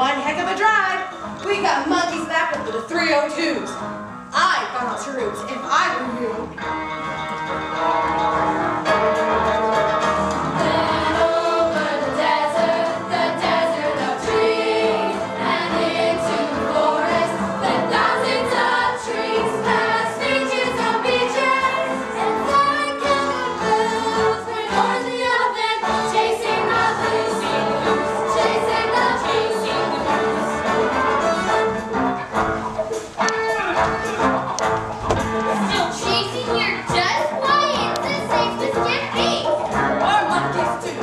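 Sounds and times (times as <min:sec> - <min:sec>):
instrumental accompaniment: 0:00.0 - 0:41.0
children's choir singing: 0:10.4 - 0:31.7, 0:35.6 - 0:41.0.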